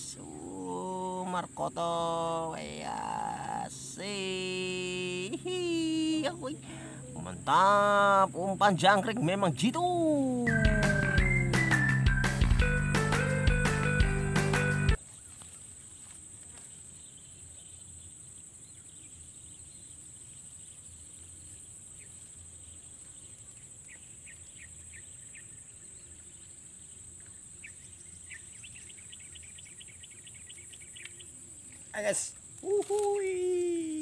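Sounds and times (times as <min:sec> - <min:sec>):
high-pitched insect drone: 0:00.0 - 0:13.4
swamp ambience: 0:00.0 - 0:34.0
music jingle: 0:10.4 - 0:15.0.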